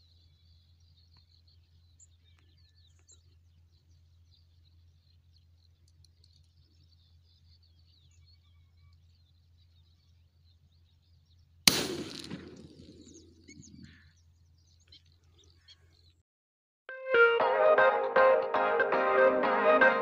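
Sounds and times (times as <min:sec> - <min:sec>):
shotgun shot: 0:11.7 - 0:13.6.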